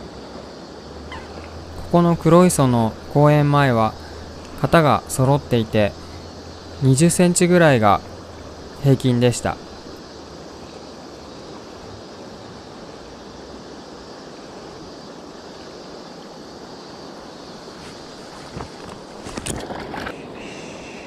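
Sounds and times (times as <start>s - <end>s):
river water rushing: 0.1s - 14.3s.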